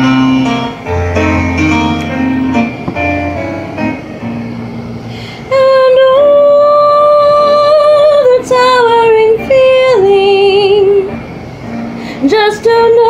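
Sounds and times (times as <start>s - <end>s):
woman singing long notes: 5.5s - 11.2s.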